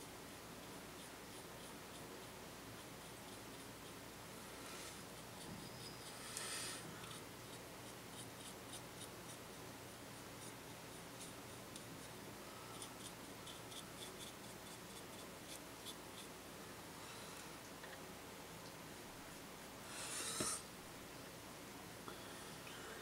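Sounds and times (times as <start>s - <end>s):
paintbrush scratchy strokes: 0.6s - 4.0s, 4.6s - 9.4s, 10.4s - 16.3s.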